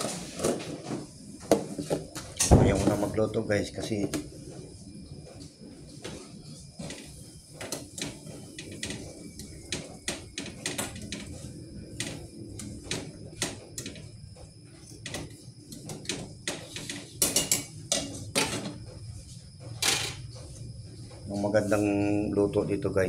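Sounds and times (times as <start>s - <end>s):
dishes and pots clinking: 16.6s - 18.8s.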